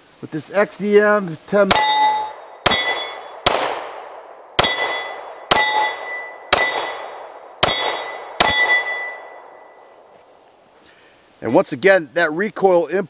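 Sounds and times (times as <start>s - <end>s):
steel plate target ringing: 1.7s - 3.6s, 4.6s - 10.0s
pistol shots: 2.6s - 9.6s.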